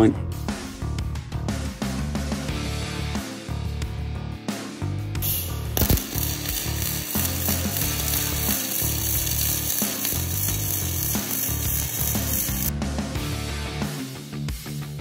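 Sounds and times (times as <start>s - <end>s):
welding arc hissing crackle: 5.2s - 12.7s.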